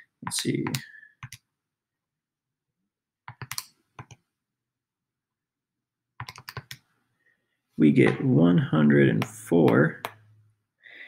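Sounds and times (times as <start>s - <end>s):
calculator keys tapping: 6.2s - 6.8s.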